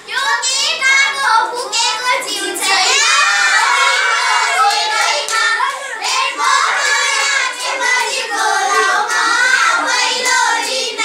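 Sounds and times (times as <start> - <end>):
children singing folk song: 0.8 - 11.0
hand claps: 4.6 - 5.8.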